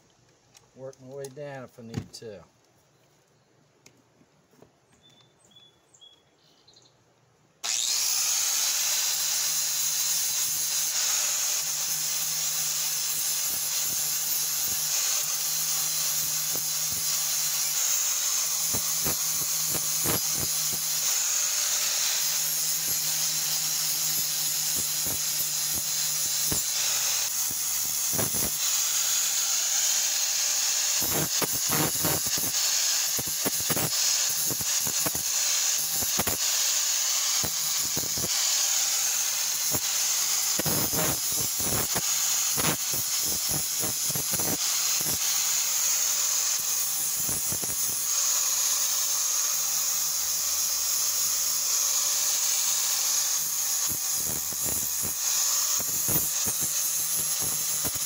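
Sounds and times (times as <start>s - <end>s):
angle grinder grinding steel: 7.6s - 58.0s
crackling scrapes of disc on steel: 31.0s - 32.6s.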